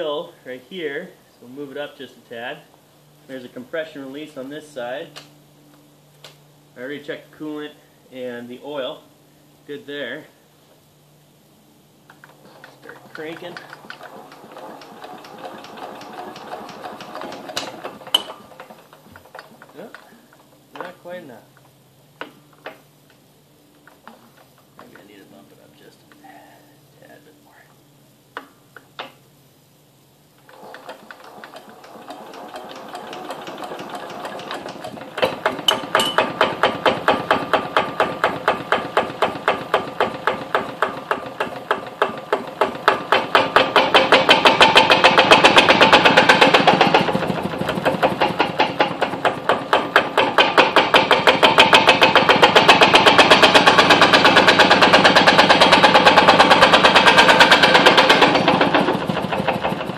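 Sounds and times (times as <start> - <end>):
engine vibration chatter on floor: 12.1 - 21.7, 30.4 - 59.9
hand-cranking whir: 12.2 - 20.4, 30.4 - 59.9
diesel engine chugging: 43.0 - 59.9.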